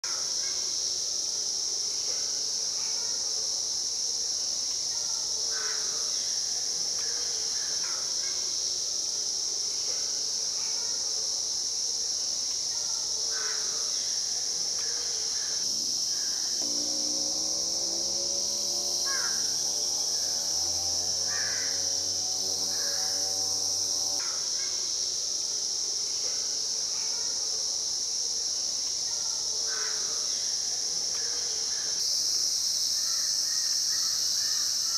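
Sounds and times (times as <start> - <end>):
insect chorus drone: 0.0 - 34.9
low hum rising in pitch: 16.6 - 24.2.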